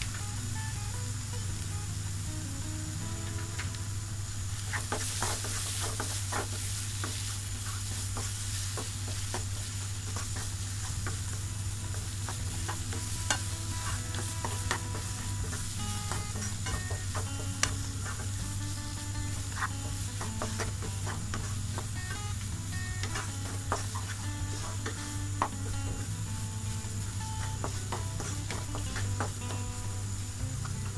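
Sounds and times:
spices sizzling in a pan: 0:00.0 - 0:30.9
wooden spatula scraping and tapping pan: 0:04.7 - 0:18.6, 0:19.2 - 0:26.1, 0:27.4 - 0:29.6.

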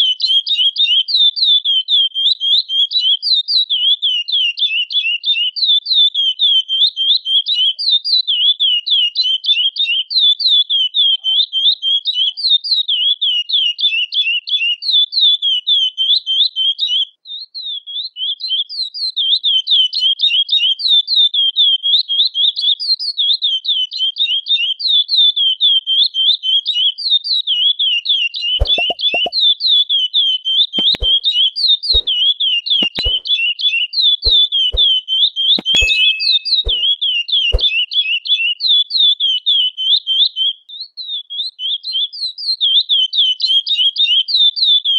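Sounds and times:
bird chirping: 0:28.6 - 0:29.3, 0:30.8 - 0:31.2, 0:31.9 - 0:32.2, 0:32.8 - 0:33.3, 0:35.6 - 0:37.9
sharp clicks: 0:28.6 - 0:29.3, 0:30.8 - 0:31.2, 0:32.0 - 0:32.2, 0:32.8 - 0:33.3, 0:34.3 - 0:34.9, 0:35.6 - 0:36.9.

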